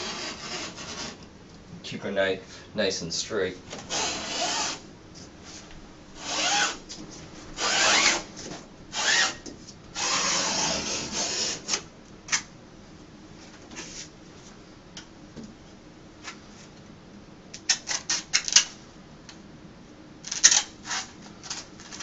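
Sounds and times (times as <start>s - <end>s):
utility knife scraping through wrap: 0.0s - 1.2s, 3.9s - 4.8s, 6.2s - 6.8s, 7.6s - 8.2s, 10.0s - 11.8s, 20.3s - 22.0s.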